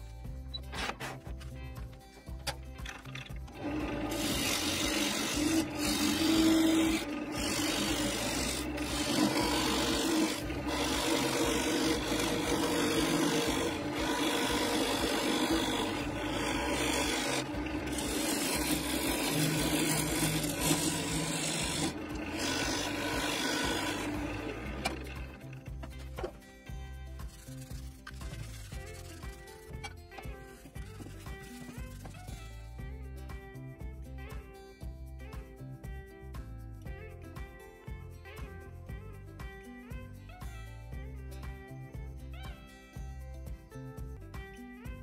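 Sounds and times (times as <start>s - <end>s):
wood lathe humming: 3.5s - 25.8s
gouge rasping on spinning wood: 3.6s - 25.5s.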